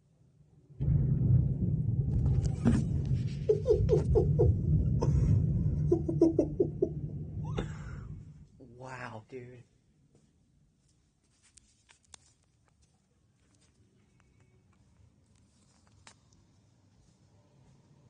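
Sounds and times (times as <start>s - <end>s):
thunder crack and rumble: 0.7s - 8.6s.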